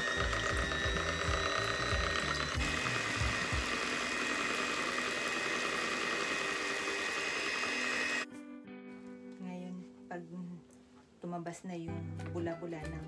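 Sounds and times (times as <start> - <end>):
electric hand mixer whipping: 0.0 - 8.3.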